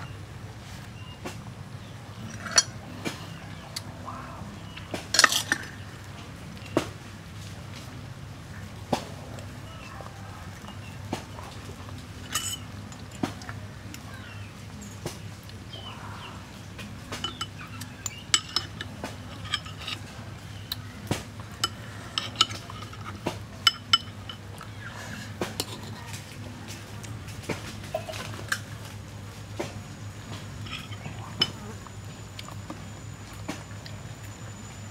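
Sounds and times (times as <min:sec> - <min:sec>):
cutlery clinking on ceramic bowl: 0:12.2 - 0:13.4, 0:17.1 - 0:20.1, 0:21.6 - 0:24.7, 0:30.3 - 0:32.6.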